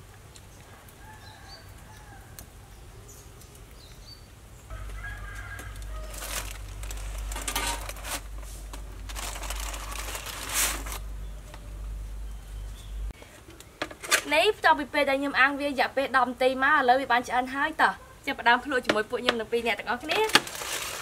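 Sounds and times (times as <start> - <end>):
chicken calling: 4.7 - 7.0
aluminium foil crinkling: 4.8 - 11.1, 19.9 - 21.0.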